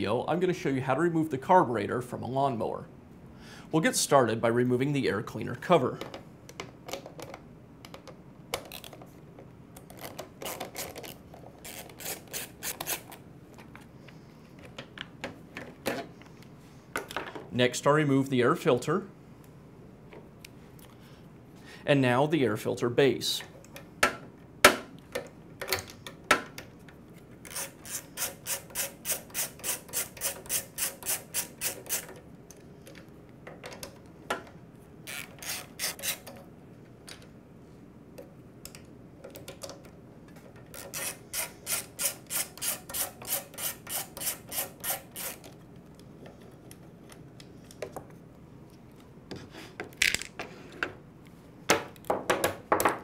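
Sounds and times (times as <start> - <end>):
parts being handled: 5.9 - 17.5, 38.0 - 53.0
socket ratchet clicking: 35.1 - 36.4.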